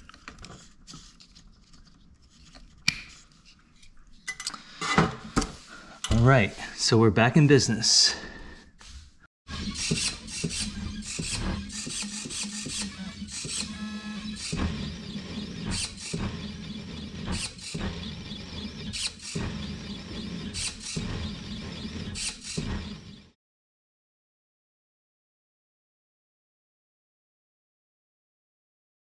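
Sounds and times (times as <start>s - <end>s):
stepper motors whirring: 9.5s - 23.4s.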